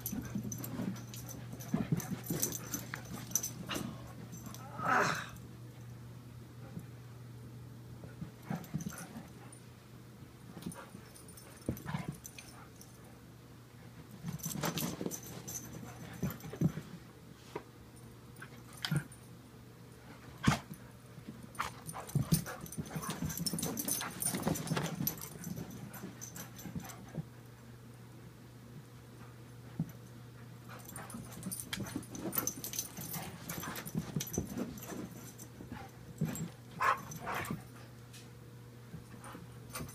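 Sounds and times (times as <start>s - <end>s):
dog paws scrabbling on rug: 0.0s - 4.6s, 13.9s - 17.7s, 20.1s - 27.4s, 30.7s - 38.2s
steady low hum: 0.0s - 39.9s.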